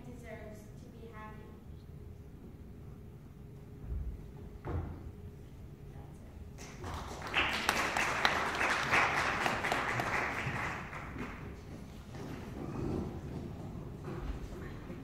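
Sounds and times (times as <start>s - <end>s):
audience applauding: 6.6s - 11.7s.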